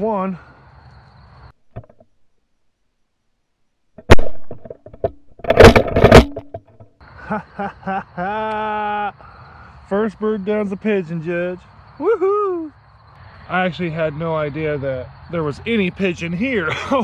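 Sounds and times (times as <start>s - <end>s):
shotgun shots: 4.0s - 4.6s.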